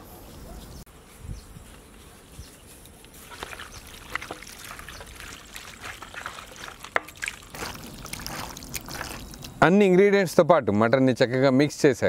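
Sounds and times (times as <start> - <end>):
hands squelching in marinade: 3.2 - 9.6.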